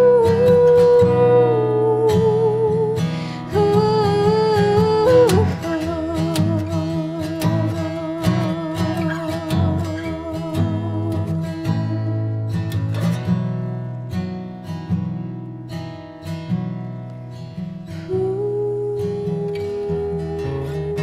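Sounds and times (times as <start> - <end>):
acoustic guitar chords: 0.0 - 21.0.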